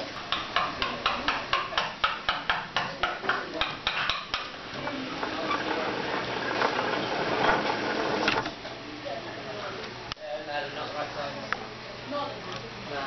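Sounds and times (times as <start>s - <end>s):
model carriage wheels rattling on track: 4.8s - 8.5s.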